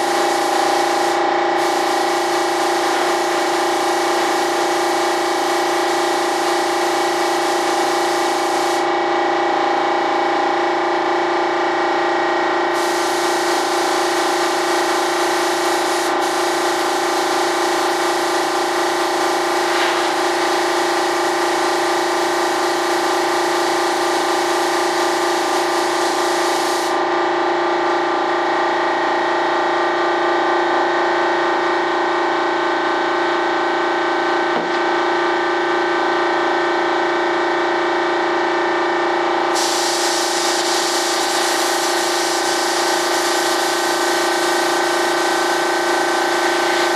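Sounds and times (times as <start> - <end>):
paint spray gun hissing: 0.0 - 8.9, 12.8 - 27.0, 39.5 - 46.9
air compressor humming: 0.0 - 46.9.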